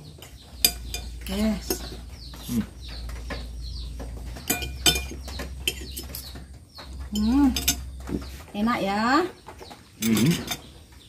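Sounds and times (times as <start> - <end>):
birds chirping: 0.0 - 11.0
cutlery clinking on ceramic plate: 4.4 - 6.2, 7.2 - 7.9.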